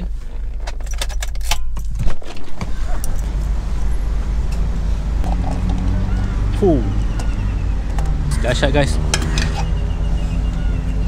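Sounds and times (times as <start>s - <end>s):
car keys jangling: 0.4s - 3.4s
steady low rumble: 2.6s - 8.4s.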